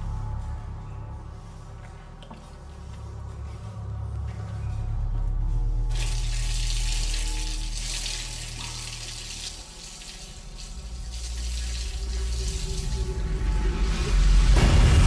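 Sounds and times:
low steady drone: 0.0s - 15.0s
water pouring and spraying: 5.9s - 14.6s.

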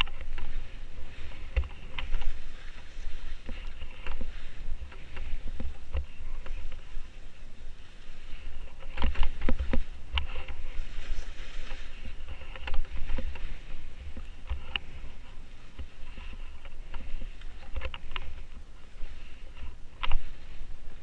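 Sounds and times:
skis scraping through snow: 0.0s - 21.0s
wind rumble on microphone: 0.0s - 21.0s
skis knocking on snow clumps: 8.7s - 20.8s.

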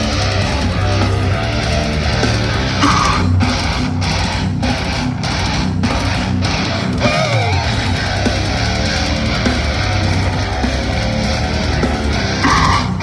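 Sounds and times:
death metal band playing: 0.0s - 13.0s
sliding high guitar note: 2.8s - 4.2s, 12.4s - 13.0s.

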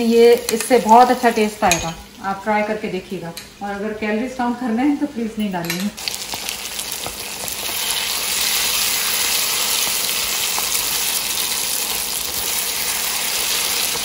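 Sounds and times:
meat sizzling in hot oil: 6.0s - 14.0s.

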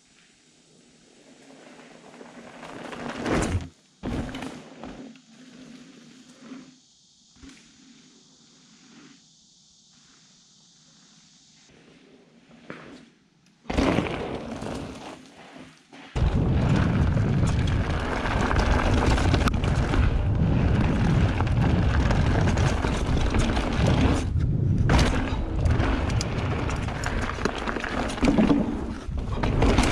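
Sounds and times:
mountain bike rushing past: 1.2s - 6.8s, 13.7s - 15.6s, 16.2s - 29.9s
tyre noise on dirt: 1.4s - 6.8s, 13.6s - 29.9s
wind buffeting: 16.2s - 29.9s.

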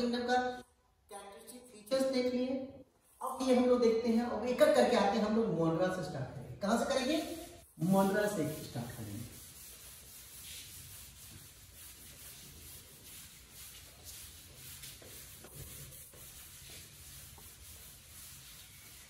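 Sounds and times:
duster rubbing chalkboard: 7.0s - 19.0s.

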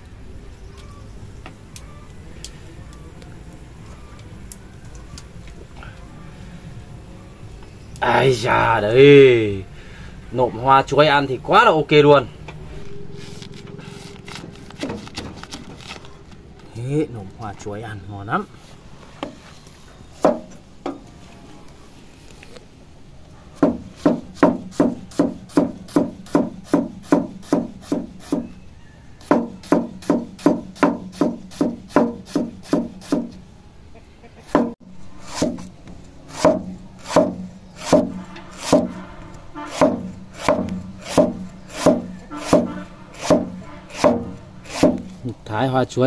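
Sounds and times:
knife chopping on wooden block: 23.6s - 28.5s, 29.2s - 33.3s, 36.3s - 38.9s, 39.7s - 45.1s.

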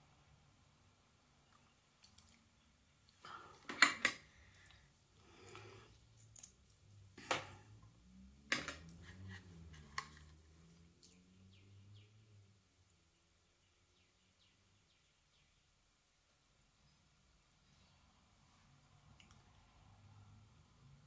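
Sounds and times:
makeup containers clicking on table: 8.5s - 8.9s.

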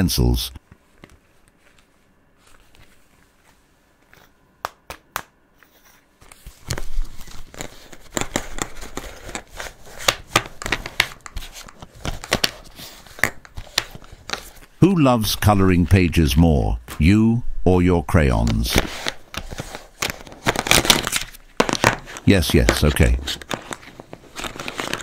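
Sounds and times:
plastic packaging crinkling: 18.8s - 25.0s.

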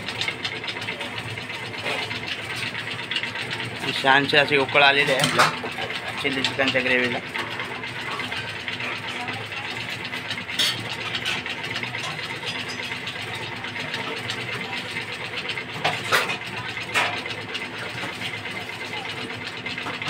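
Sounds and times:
gravy bubbling in a pot: 0.0s - 20.0s.

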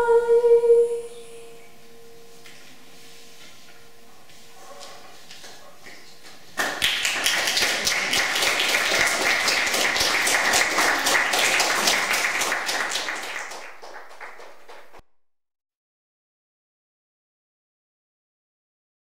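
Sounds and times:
audience applause: 6.0s - 15.0s.

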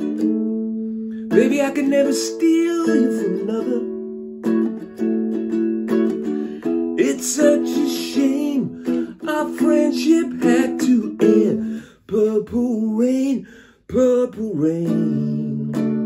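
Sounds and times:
strummed ukulele: 0.0s - 16.0s
man singing: 1.3s - 4.0s, 7.0s - 16.0s.

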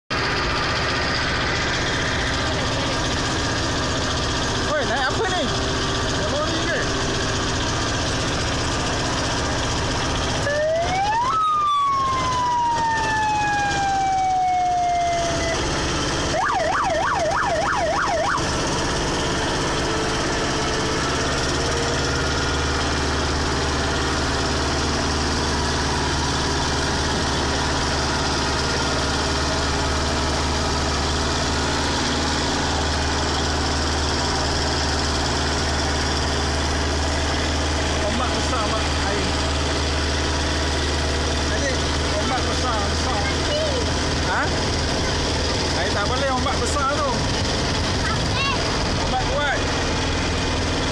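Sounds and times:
tractor engine droning: 0.1s - 50.9s
electronic siren whooping and warbling: 10.4s - 18.6s.

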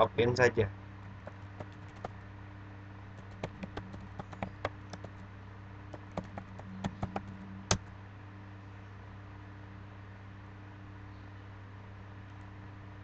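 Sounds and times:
low hum: 1.0s - 8.9s.

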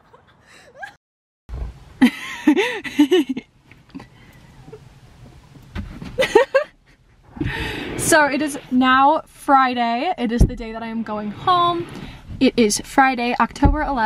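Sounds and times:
women laughing: 0.0s - 1.0s, 2.0s - 3.5s, 6.2s - 7.6s
snow brush sweeping car window: 11.1s - 12.0s.

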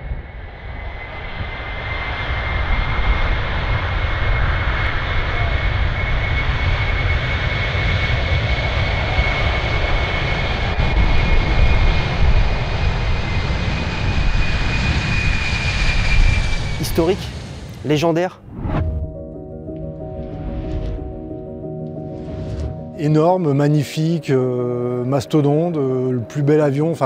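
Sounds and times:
jet engines roaring: 0.3s - 22.9s
high jet whine: 13.3s - 27.0s.

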